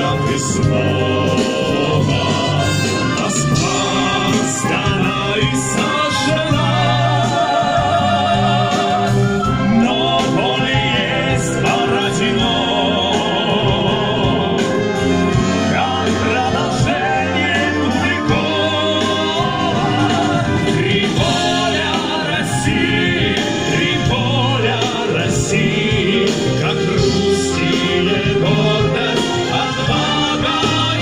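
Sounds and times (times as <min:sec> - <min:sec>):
brass band playing: 0:00.0 - 0:31.0
men singing with vibrato: 0:00.0 - 0:31.0.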